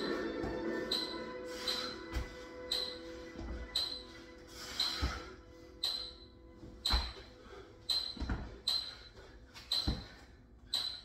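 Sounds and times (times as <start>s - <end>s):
man breathing hard: 1.1s - 3.4s, 4.1s - 5.8s.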